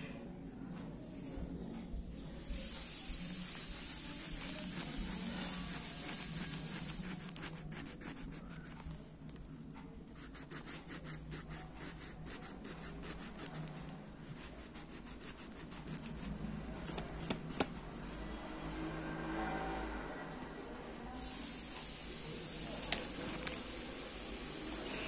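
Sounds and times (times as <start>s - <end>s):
eraser rubbing on paper: 2.6s - 8.9s, 10.1s - 17.6s.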